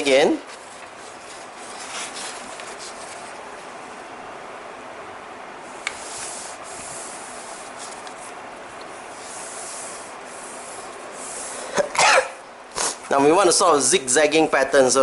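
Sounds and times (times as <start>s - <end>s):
hands rubbing paper: 0.4s - 3.7s, 5.7s - 11.5s.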